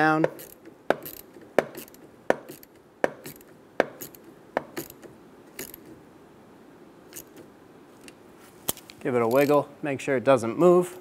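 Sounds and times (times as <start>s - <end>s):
ratchet wrench clicking: 0.2s - 5.9s.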